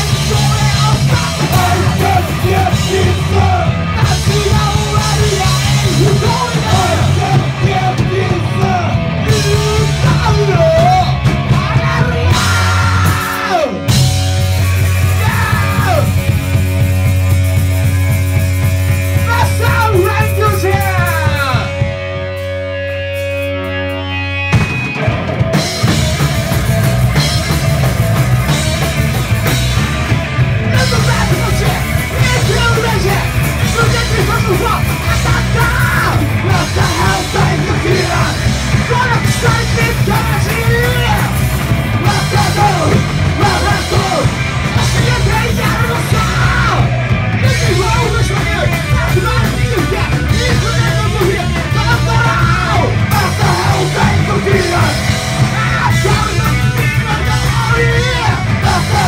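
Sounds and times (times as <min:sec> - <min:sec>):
singer yelling into microphone: 0:00.0 - 0:14.0, 0:15.0 - 0:16.3, 0:19.2 - 0:21.8, 0:30.7 - 0:59.0
punk rock band playing: 0:00.0 - 0:59.0.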